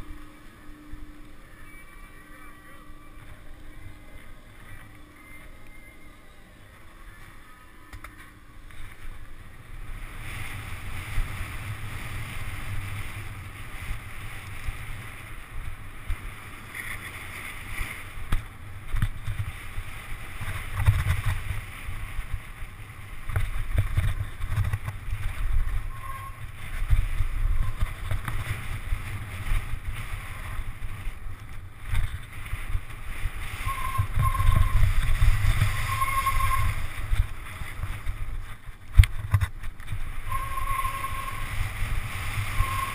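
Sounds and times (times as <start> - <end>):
wind rumble on microphone: 0.0 - 42.9
short squeaks: 25.9 - 26.4, 35.7 - 36.8.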